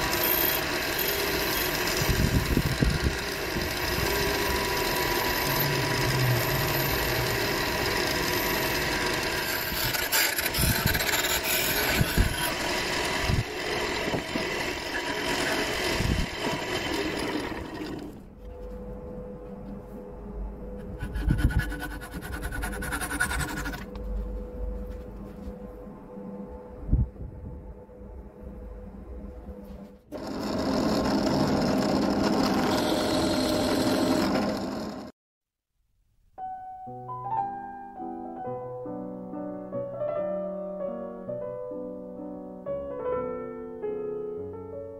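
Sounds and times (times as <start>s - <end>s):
wood lathe spinning: 0.0s - 18.4s, 20.8s - 24.0s, 30.1s - 35.1s
sandpaper and tool rasping on wood: 9.4s - 12.6s, 20.9s - 24.0s
faint hum: 17.9s - 30.1s.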